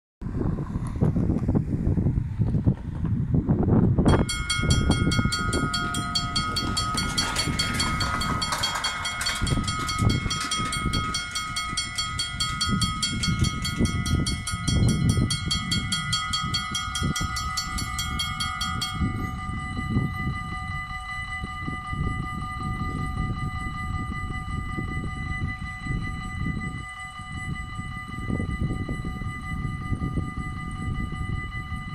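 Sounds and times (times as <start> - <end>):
wind buffeting microphone: 0.2 - 31.9
level crossing bell ringing: 4.1 - 21.3.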